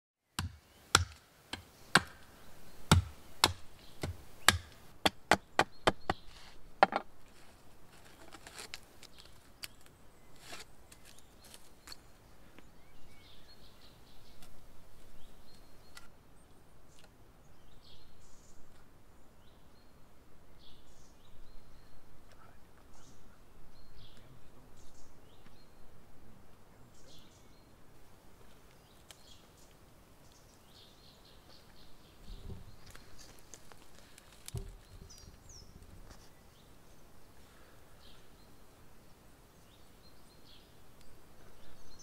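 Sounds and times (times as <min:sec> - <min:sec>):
wood being chopped: 0:00.4 - 0:02.3, 0:02.9 - 0:06.2, 0:06.8 - 0:07.1
faint bird chirps: 0:15.1 - 0:27.9.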